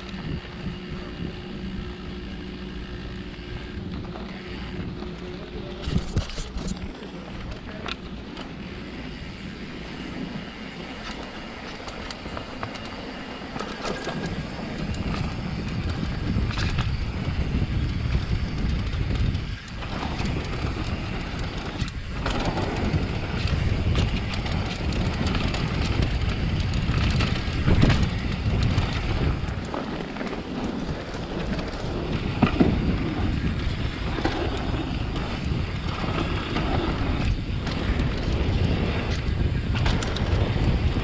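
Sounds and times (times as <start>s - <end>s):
bike rumbling and rattling: 0.0s - 41.0s
wind buffeting microphone: 0.0s - 41.0s.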